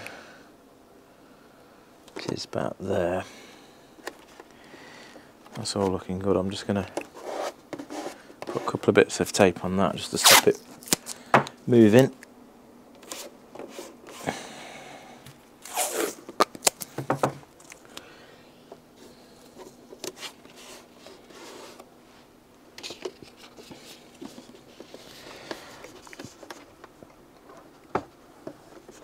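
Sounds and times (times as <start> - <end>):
tape ripped off roll: 10.2 - 11.0.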